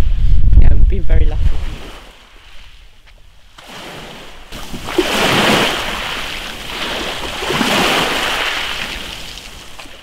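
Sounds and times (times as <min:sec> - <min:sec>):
waves washing over shingle: 0:03.6 - 0:10.0.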